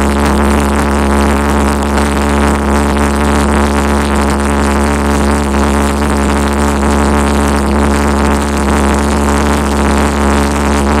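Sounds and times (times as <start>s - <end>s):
pulse jet engine drone: 0.0s - 11.0s.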